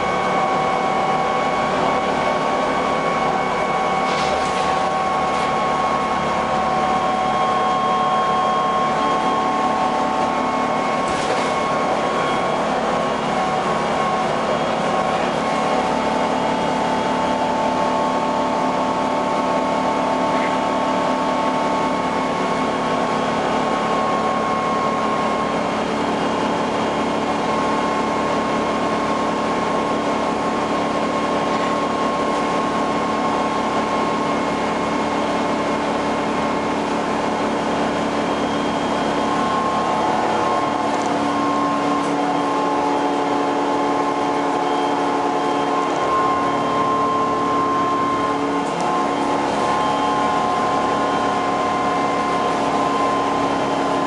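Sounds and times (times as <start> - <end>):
bus diesel engine running: 0.0 - 54.0
steady whine: 0.0 - 54.0.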